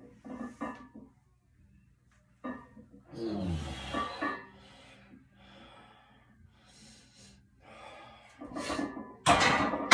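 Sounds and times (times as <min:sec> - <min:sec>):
man breathing hard: 0:04.6 - 0:08.8.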